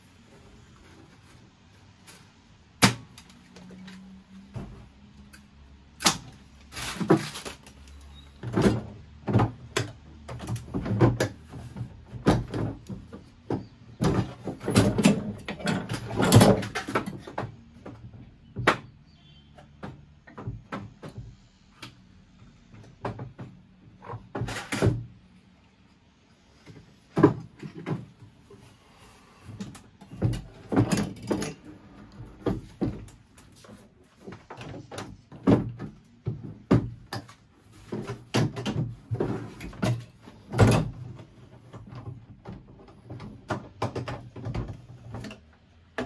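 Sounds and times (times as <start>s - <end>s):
objects knocking and scraping: 6.2s - 18.9s, 26.5s - 46.0s.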